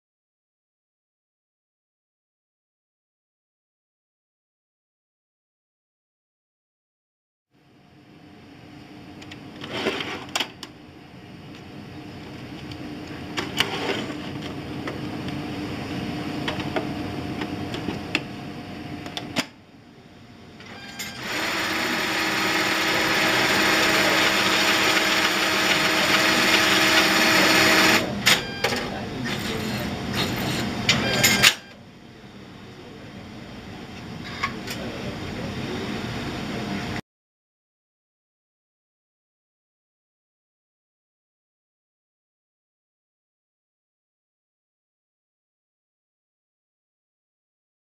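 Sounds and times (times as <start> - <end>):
cash dispenser motor whir: 20.6 - 28.7.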